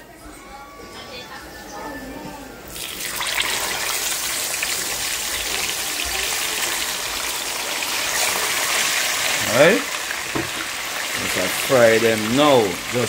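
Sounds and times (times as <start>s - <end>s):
oil sizzling and crackling: 2.8s - 13.0s.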